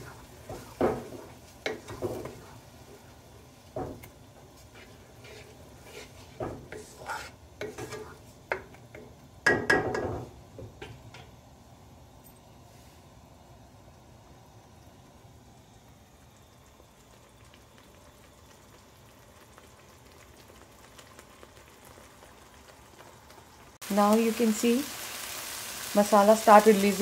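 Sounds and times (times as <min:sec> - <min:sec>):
spatula scraping in a pan: 0:04.5 - 0:08.7.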